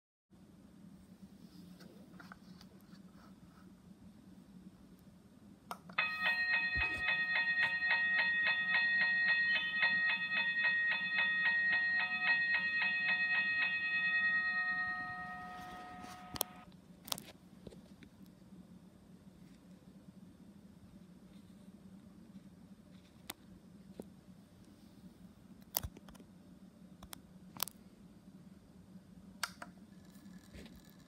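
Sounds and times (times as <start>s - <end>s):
toy crossing warning bell dinging: 6.0s - 16.6s.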